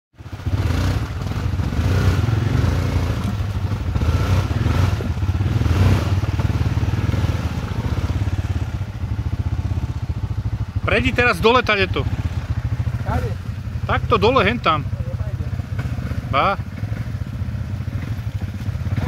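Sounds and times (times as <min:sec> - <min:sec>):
atv engine revving in mud: 0:00.2 - 0:19.0.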